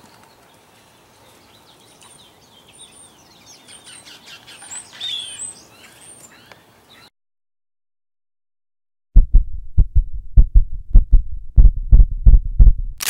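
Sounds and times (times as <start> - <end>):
birds chirping: 0.0 - 7.1
faint outdoor hiss: 0.0 - 7.1.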